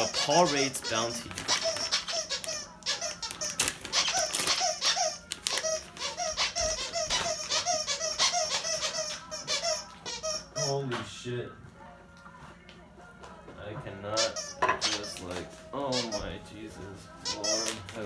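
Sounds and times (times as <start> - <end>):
dog toy squeaker squeaking: 0.0 - 10.9, 14.1 - 15.2, 15.8 - 16.4, 17.2 - 17.8
plastic bag crackling: 0.2 - 6.0.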